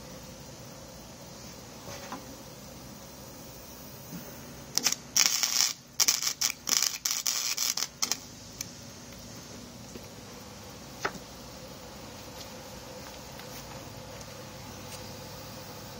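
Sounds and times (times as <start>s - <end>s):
welder arcing on steel: 3.6s - 9.2s.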